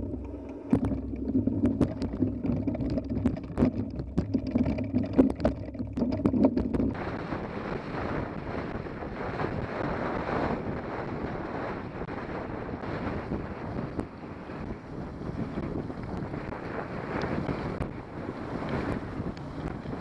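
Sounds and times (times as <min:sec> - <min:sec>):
tyres rolling on gravel: 0:00.0 - 0:07.3
bike rattling and knocking: 0:00.0 - 0:07.4, 0:14.7 - 0:20.0
wind on microphone: 0:00.0 - 0:20.0.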